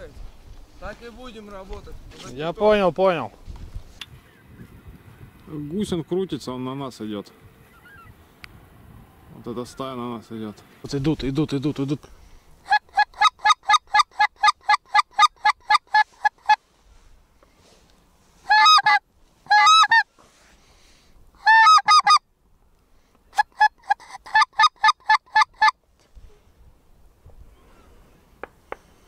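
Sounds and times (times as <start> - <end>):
goose honking: 12.6 - 16.6, 18.5 - 20.1, 21.4 - 22.2, 23.4 - 25.8.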